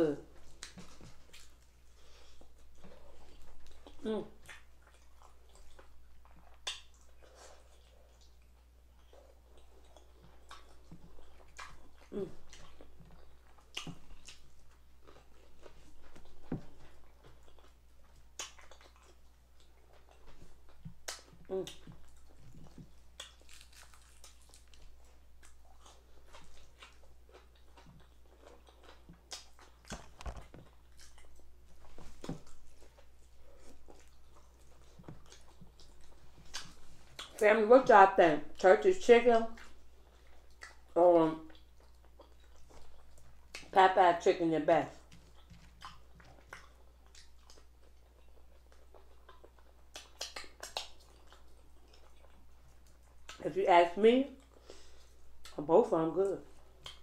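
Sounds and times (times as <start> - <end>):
faint low hum: 0.0 - 57.0
chewing crispy chicken crunches: 0.4 - 37.4, 45.0 - 53.4.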